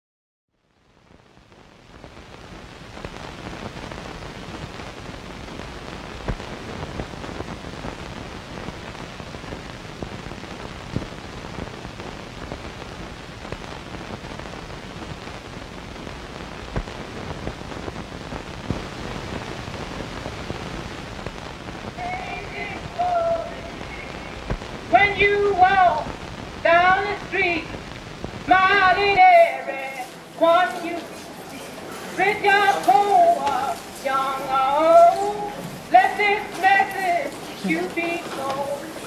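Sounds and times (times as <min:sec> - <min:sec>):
steady hiss: 0:00.6 - 0:39.0
sharp pops: 0:03.0 - 0:15.4, 0:16.0 - 0:28.5.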